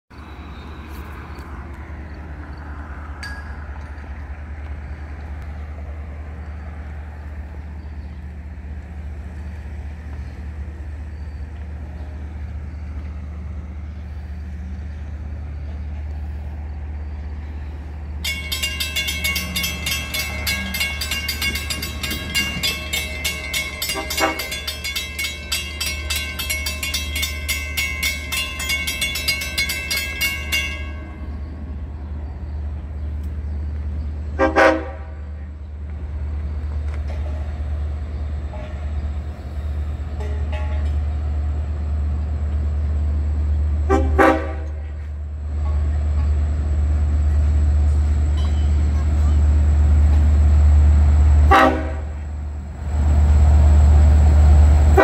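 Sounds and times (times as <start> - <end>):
crossing warning bells ringing: 2.5 - 5.4, 17.4 - 31.9, 40.1 - 55.0.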